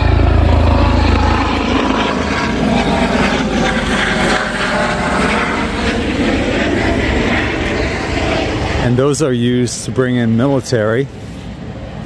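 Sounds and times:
helicopter rotor beat: 0.0s - 12.0s
steady rushing noise: 0.0s - 12.0s.

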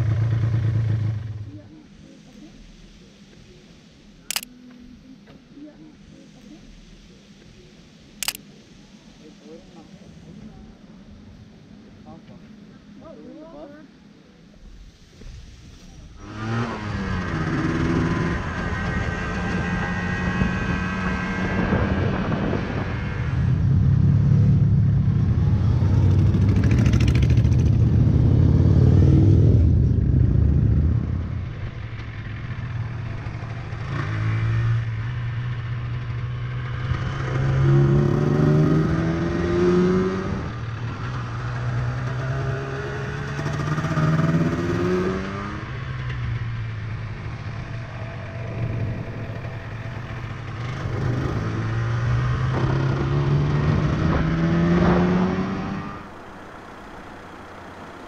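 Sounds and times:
motorcycle engine accelerating: 0.0s - 1.7s, 16.2s - 58.0s.

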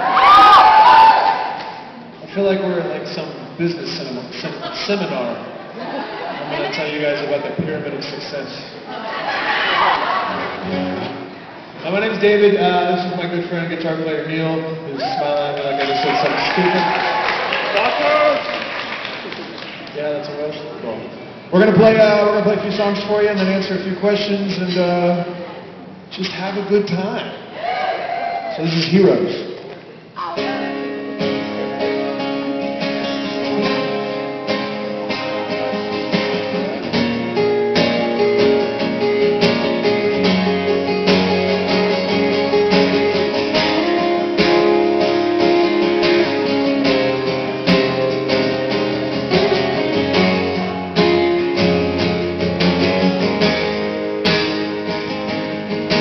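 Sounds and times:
acoustic guitars strumming: 9.8s - 13.9s, 30.3s - 56.0s.

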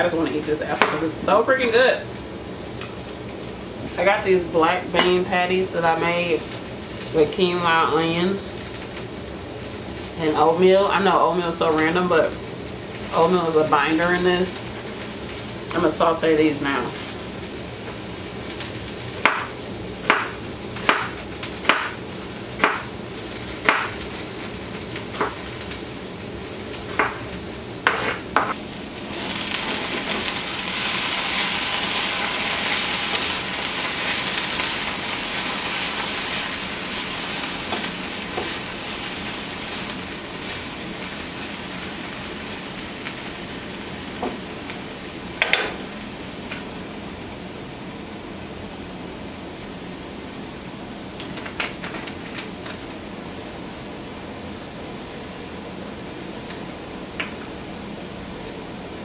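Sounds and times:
patties sizzling in hot oil: 0.0s - 59.0s
knocks on a skillet: 19.2s - 19.5s, 20.1s - 22.0s, 23.6s - 24.0s.

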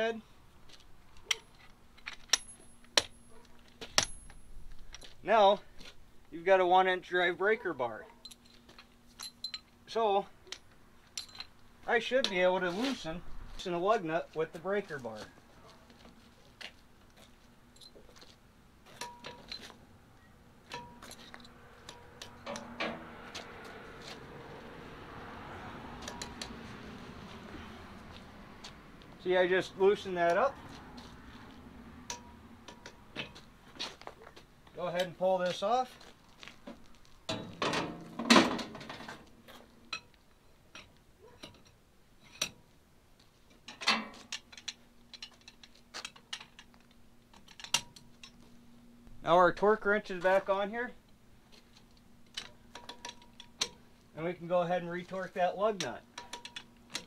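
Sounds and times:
metallic clicks and clinks: 1.1s - 3.3s, 9.2s - 9.7s, 10.5s - 11.6s.

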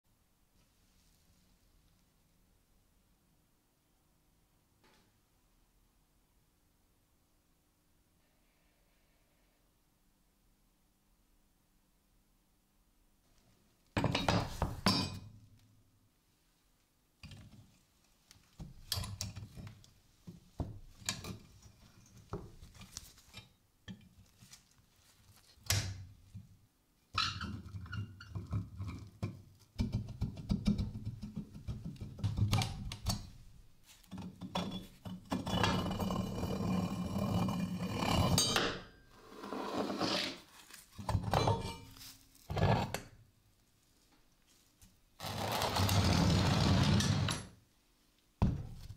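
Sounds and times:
rough rubbing noise: 39.2s - 40.6s, 45.2s - 47.4s.

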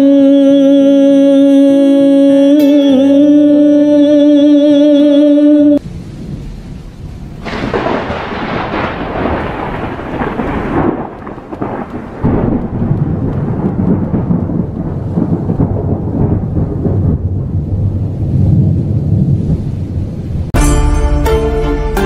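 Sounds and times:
deep rumble of thunder: 6.1s - 20.6s
thunderclap cracking: 6.1s - 20.6s.

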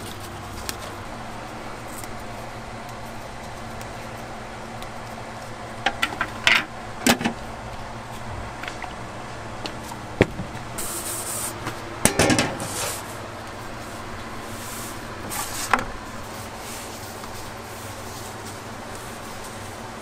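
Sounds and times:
steady low hum: 0.0s - 20.0s
kitchen tools knocking and clicking: 12.0s - 12.7s
metal pizza peel clanking: 12.0s - 13.0s.

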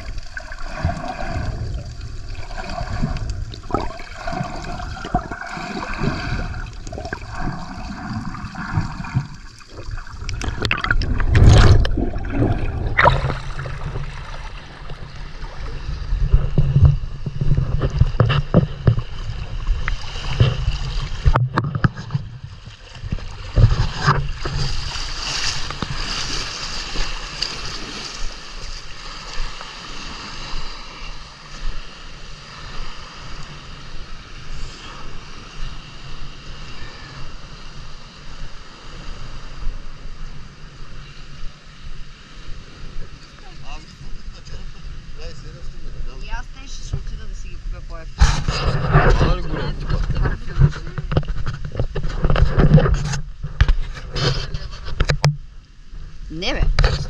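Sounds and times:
water splashes: 0.0s - 40.6s
water sloshing and gurgling: 0.0s - 57.0s.

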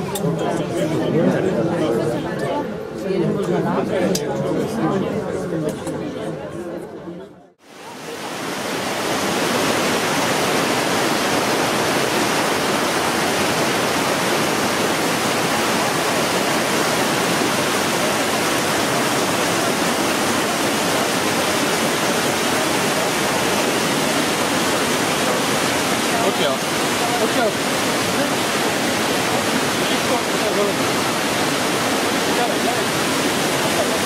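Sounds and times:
waterfall rushing: 7.6s - 34.0s.

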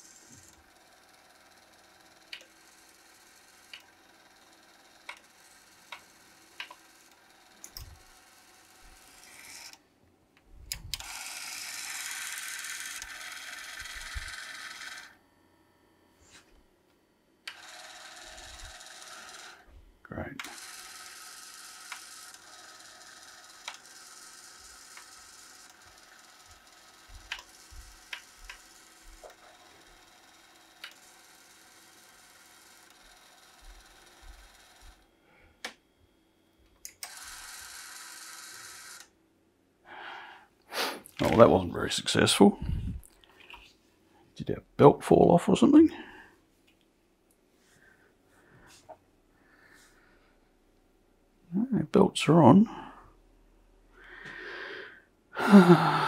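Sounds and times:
whirring motor: 0.0s - 9.8s, 10.6s - 15.2s, 17.5s - 19.8s, 20.4s - 35.1s, 36.9s - 39.2s
tape mechanism clicks: 17.5s - 19.5s, 23.5s - 24.0s, 27.0s - 29.4s, 30.8s - 31.1s.

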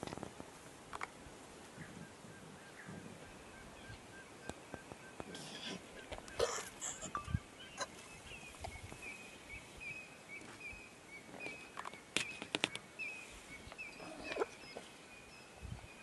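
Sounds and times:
scuffling clicks on dry ground: 0.0s - 1.2s, 11.3s - 12.9s.

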